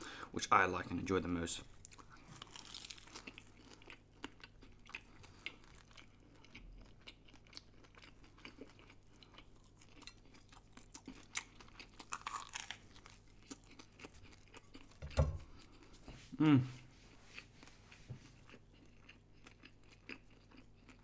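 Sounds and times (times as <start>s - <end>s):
chewing and crunching sandwich: 1.7s - 16.0s, 17.3s - 21.0s.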